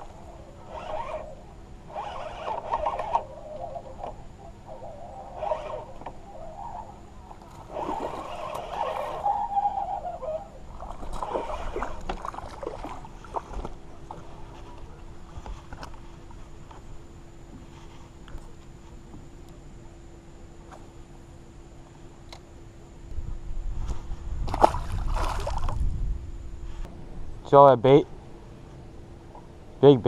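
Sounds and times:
fishing reel cranking: 0.6s - 1.3s, 1.9s - 4.2s, 5.2s - 6.9s, 7.7s - 10.5s, 11.1s - 12.0s.

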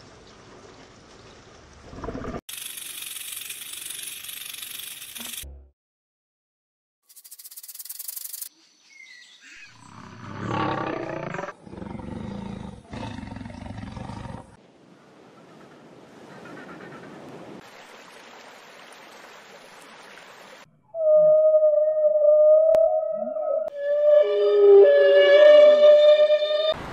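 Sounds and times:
lion roaring: 9.9s - 14.6s.

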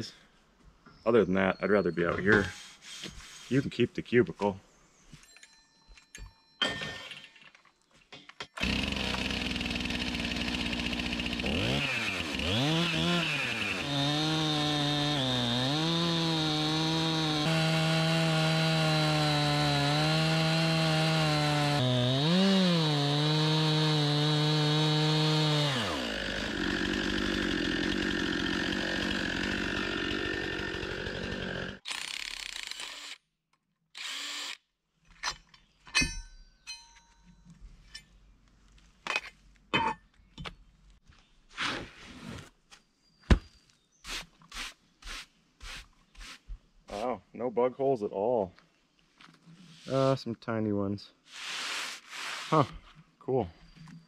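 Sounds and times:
chainsaw cutting a log: 8.6s - 33.1s.

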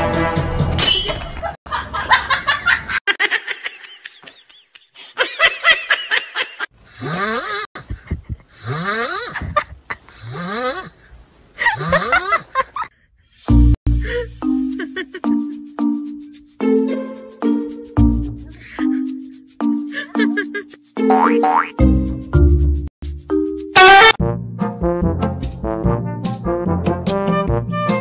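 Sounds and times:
person laughing: 1.7s - 12.9s, 14.0s - 15.6s, 19.9s - 21.6s.

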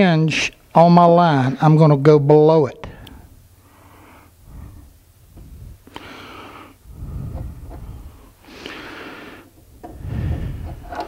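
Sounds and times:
man breathing into microphone: 2.9s - 11.0s.

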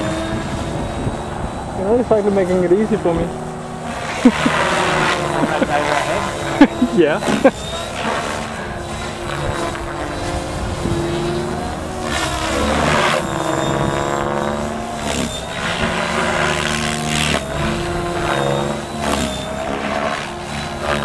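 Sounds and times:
helicopter motor and rotor whine: 0.0s - 21.0s
rushing blade noise: 0.0s - 21.0s.

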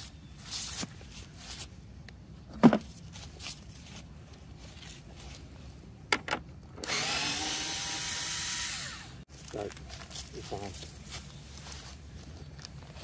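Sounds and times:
cordless screwdriver motor running: 6.8s - 9.2s.

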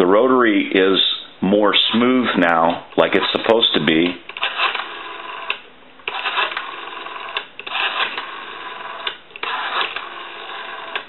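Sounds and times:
rotary dial click: 4.3s - 11.0s
rotary telephone dial whirring: 4.3s - 11.0s.

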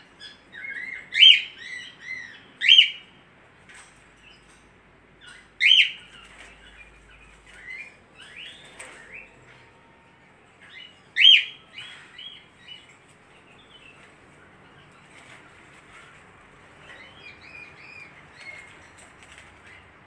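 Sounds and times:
parakeet chirping: 5.2s - 6.9s.

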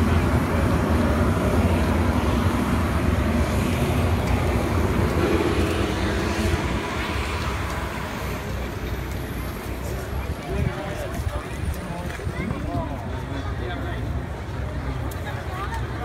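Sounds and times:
jet engines rumbling: 0.0s - 12.2s.

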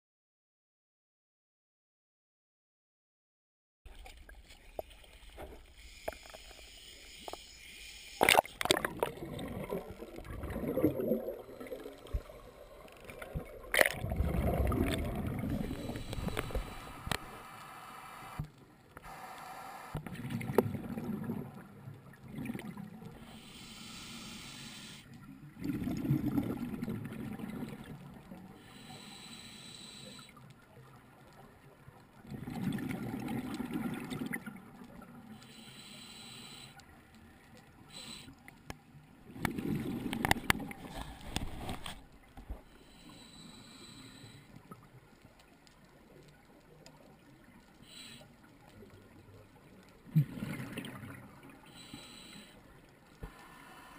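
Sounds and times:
regulator inhale hiss: 5.6s - 8.4s, 15.6s - 18.4s, 23.2s - 25.2s, 28.5s - 30.4s, 35.3s - 36.9s, 37.9s - 38.4s, 42.7s - 44.6s, 47.8s - 48.5s, 51.6s - 53.9s
exhaled air bubbling: 8.2s - 17.4s, 20.0s - 23.4s, 25.3s - 28.6s, 32.2s - 35.3s, 39.2s - 42.7s, 47.1s - 51.6s.

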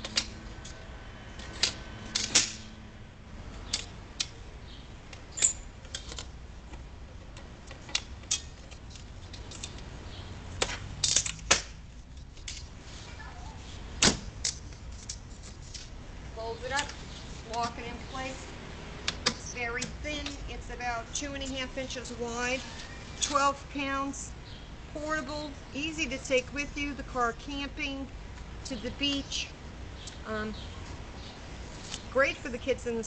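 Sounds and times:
metal table folding clicks: 1.4s - 2.7s, 5.1s - 6.3s, 7.3s - 9.8s, 10.6s - 11.8s.

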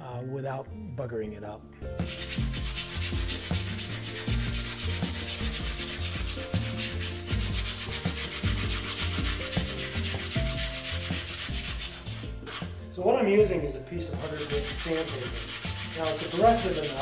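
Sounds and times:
sandpaper scraping metal: 2.0s - 12.7s, 14.2s - 17.0s.

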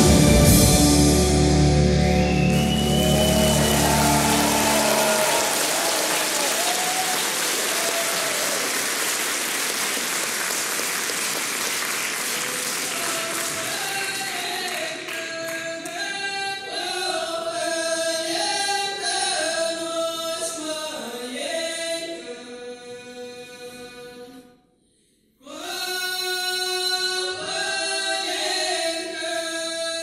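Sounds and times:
audience applauding: 2.1s - 15.6s.

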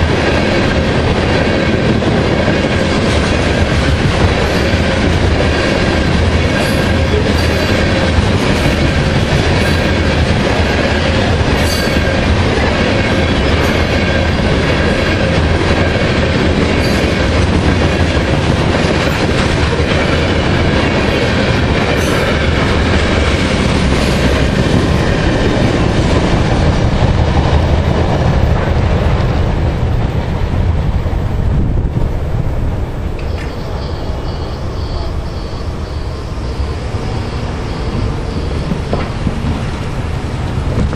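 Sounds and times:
freight train wheels rumbling: 0.0s - 40.9s
train cars clanking: 0.0s - 40.9s.

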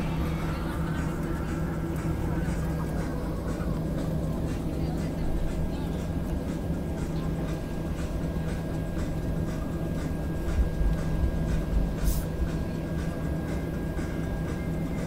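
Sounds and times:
jet engines idling rumble: 0.0s - 15.0s
brief hiss: 12.0s - 12.3s.

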